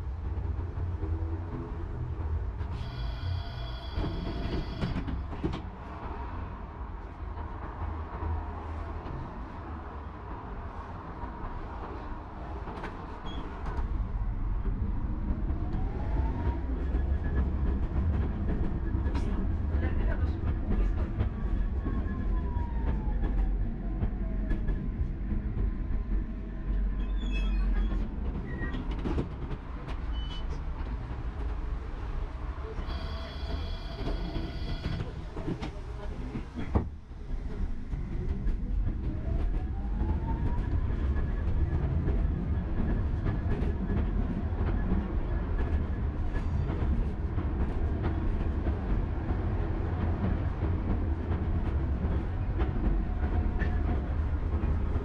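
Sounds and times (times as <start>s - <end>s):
tram rumble: 0.0s - 55.0s.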